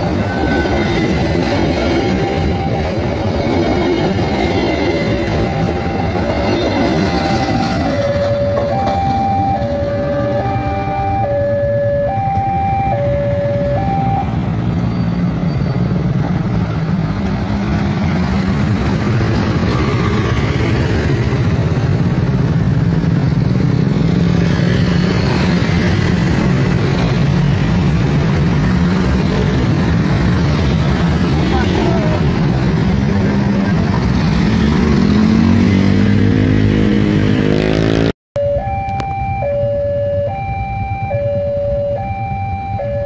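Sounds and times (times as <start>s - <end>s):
crossing alarm alternating tones: 0.0s - 14.6s, 38.4s - 43.0s
motorcycle and car engines: 0.0s - 43.0s.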